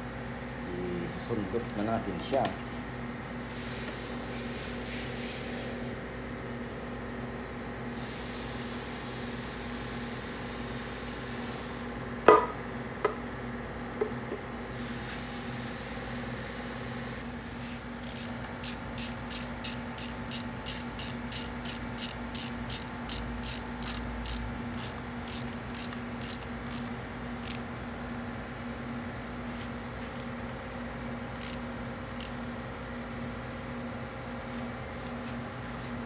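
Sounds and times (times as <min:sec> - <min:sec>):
hand tool clicking: 0:18.0 - 0:27.6, 0:31.4 - 0:31.6.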